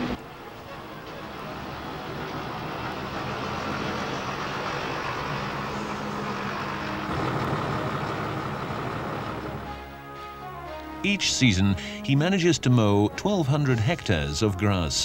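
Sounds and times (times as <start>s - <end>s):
tractor diesel engine: 0.0s - 15.0s.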